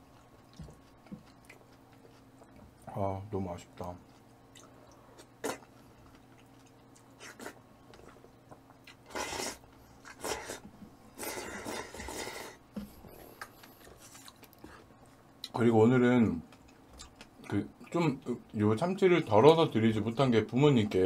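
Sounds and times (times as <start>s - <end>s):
person chewing noisily: 0.0s - 3.0s, 4.0s - 15.6s, 16.4s - 18.0s.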